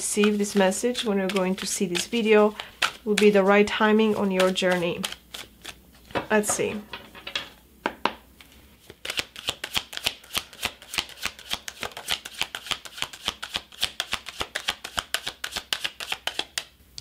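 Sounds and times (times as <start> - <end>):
cards being shuffled by hand: 0.0 - 6.1, 8.4 - 16.7.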